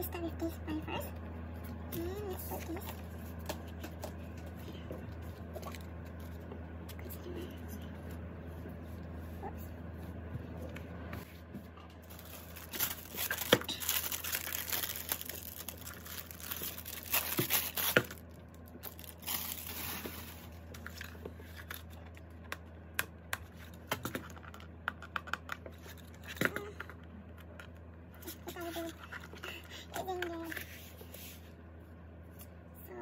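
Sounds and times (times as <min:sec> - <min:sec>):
plastic rustling and crinkling: 0:11.3 - 0:22.2.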